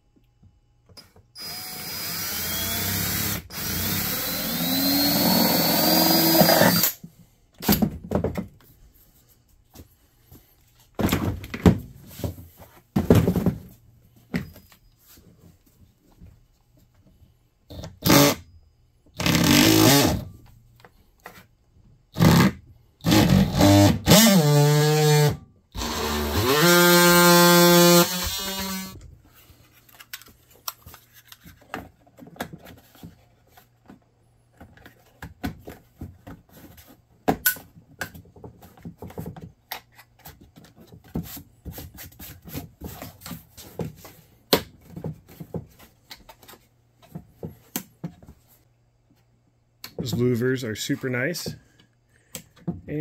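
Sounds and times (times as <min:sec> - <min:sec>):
oscillating multi-tool buzzing: 0:23.6 - 0:29.0.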